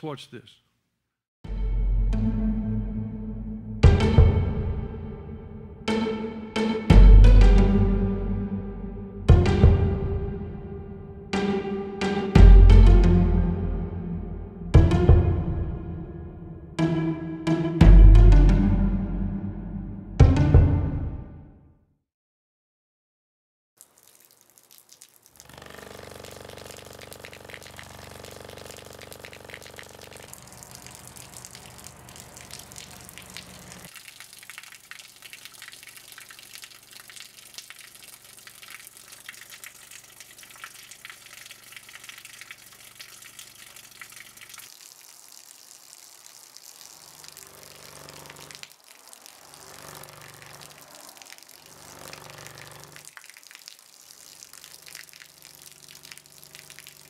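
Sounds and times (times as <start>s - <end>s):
water pouring from a hose: 23.8s - 57.0s.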